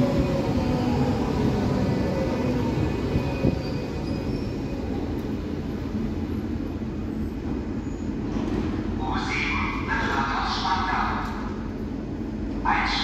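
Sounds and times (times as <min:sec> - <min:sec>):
wheel and brake squeal: 0:03.4 - 0:04.8.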